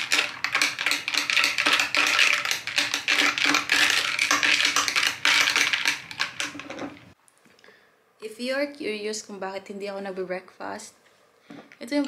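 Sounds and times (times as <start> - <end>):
ice and straw clinking in glass: 0.0 - 7.0.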